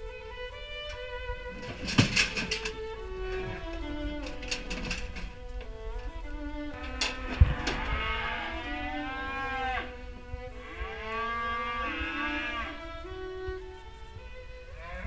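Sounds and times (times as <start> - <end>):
cattle mooing: 6.8 - 10.0, 10.6 - 12.9, 14.8 - 15.0.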